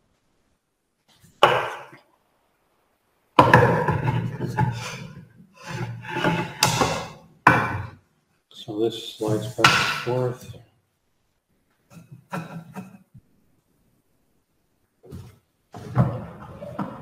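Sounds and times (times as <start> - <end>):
wooden boards knocking: 1.4 - 2.0, 3.4 - 5.1, 5.7 - 8.0, 9.6 - 10.2
wooden boards clattering: 3.4 - 7.9
wood scraping on wood: 3.5 - 7.7.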